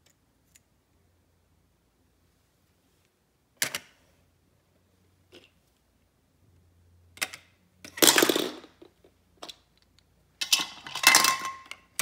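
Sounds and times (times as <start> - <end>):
plastic toy pieces clattering: 7.2 - 9.6, 10.4 - 12.0.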